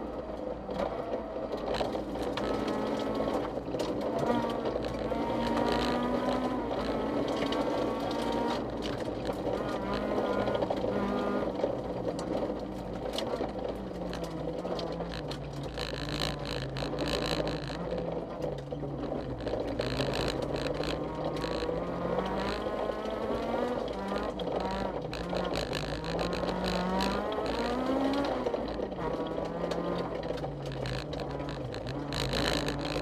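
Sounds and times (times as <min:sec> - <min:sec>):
car engine revving: 0:00.0 - 0:33.0
gravel crackling against car underside: 0:00.0 - 0:33.0.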